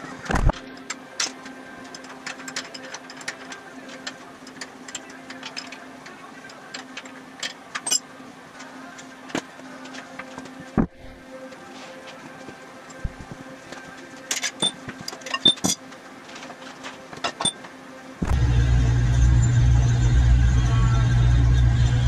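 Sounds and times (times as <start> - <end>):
steady low hum: 18.0 - 22.0.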